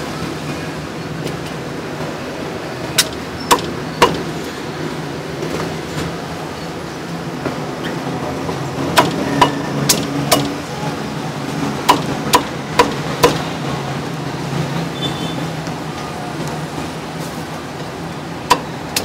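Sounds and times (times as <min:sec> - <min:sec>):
cleaver chopping on wooden block: 0:03.0 - 0:04.2, 0:09.0 - 0:10.5, 0:11.9 - 0:13.4.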